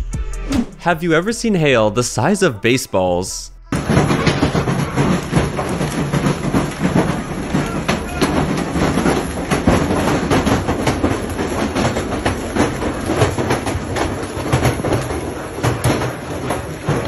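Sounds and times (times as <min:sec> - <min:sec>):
hailstones pelting down: 0:03.8 - 0:17.0.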